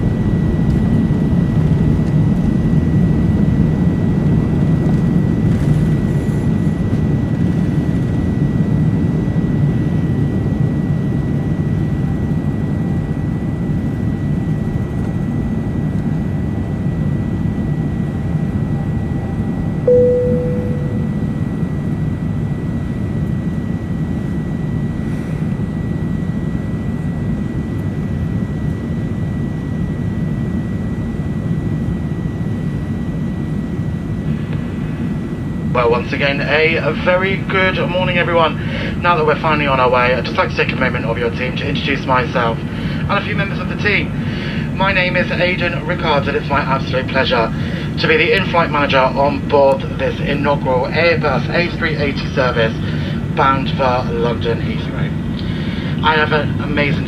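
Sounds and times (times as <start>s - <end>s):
airplane cabin engine rumble: 0.0s - 57.0s
faint high whine: 16.8s - 25.0s
cabin chime: 19.4s - 21.2s.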